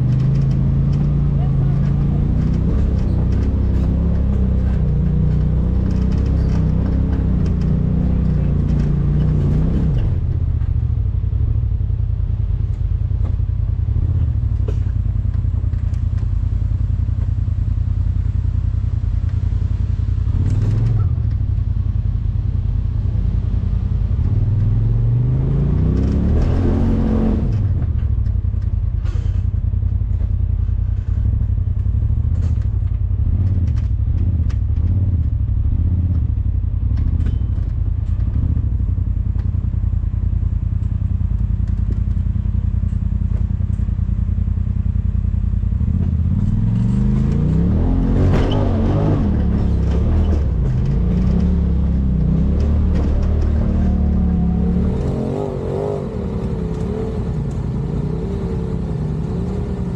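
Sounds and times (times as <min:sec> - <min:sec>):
engine revving under load: 0:00.0 - 0:10.7, 0:24.1 - 0:28.0, 0:45.8 - 0:59.9
clatter over rough ground: 0:00.0 - 0:18.4, 0:24.1 - 0:59.9.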